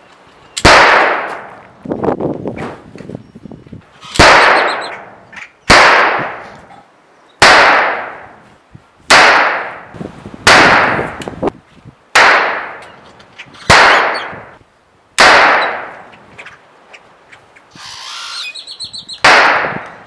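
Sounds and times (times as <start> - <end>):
revolver gunshots with echo: 0.6 - 1.5, 4.2 - 6.4, 7.4 - 8.4, 9.1 - 11.2, 12.1 - 12.8, 13.7 - 14.5, 15.2 - 16.0, 19.2 - 19.8.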